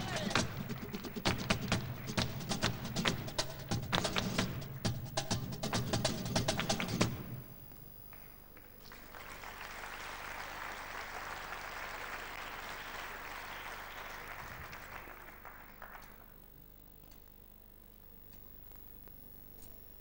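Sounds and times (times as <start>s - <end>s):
audience applauding: 0.0s - 3.4s, 8.1s - 16.4s.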